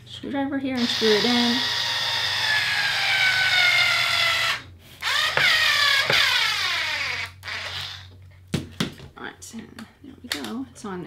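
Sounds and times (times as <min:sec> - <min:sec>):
electric screwdriver motor whining: 0:00.8 - 0:08.2.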